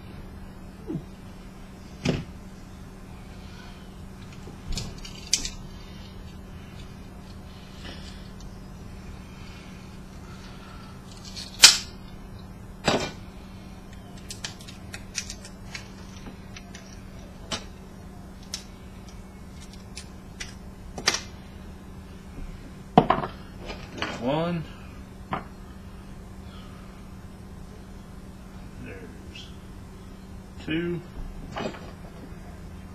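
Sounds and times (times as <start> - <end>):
steady low hum: 0.0 - 32.9
plastic parts snapping: 4.7 - 5.6, 11.1 - 11.9, 13.9 - 17.7, 18.4 - 21.3.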